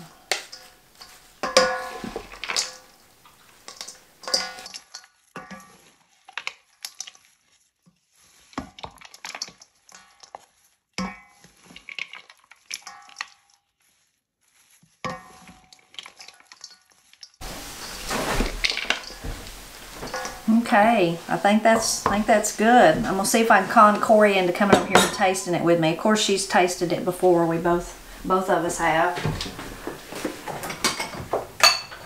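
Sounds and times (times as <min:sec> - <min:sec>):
wooden spoons knocking metal bowl: 0:00.0 - 0:05.7, 0:11.0 - 0:12.0, 0:12.8 - 0:13.4, 0:15.1 - 0:16.8, 0:17.4 - 0:32.0
metal bowl ringing: 0:00.5 - 0:03.0.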